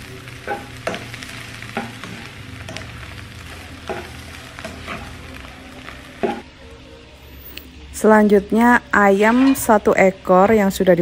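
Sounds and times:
bread and onion sizzling: 0.0 - 11.0
spatula scraping a pan: 0.3 - 6.5, 9.0 - 10.1.

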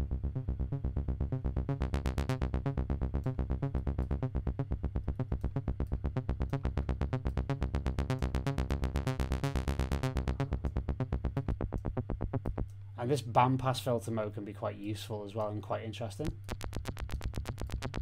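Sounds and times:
sequenced synth notes: 0.0 - 12.9, 16.2 - 18.0
steady low synth tone: 0.0 - 12.9.

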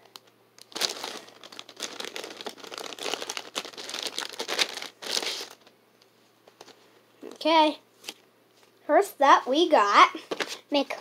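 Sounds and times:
plastic bag crinkling: 0.0 - 5.7.

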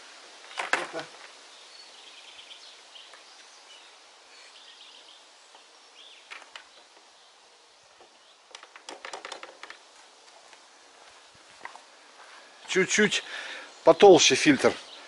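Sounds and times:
outdoor noise: 0.0 - 15.0
birds chirping: 0.4 - 15.0
plastic clicks and knocks: 8.0 - 9.8.

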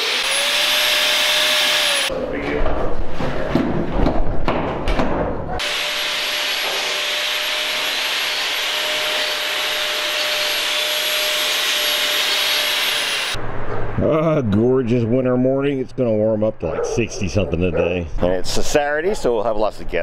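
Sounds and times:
shop vacuum running: 0.0 - 2.1, 5.6 - 13.4.

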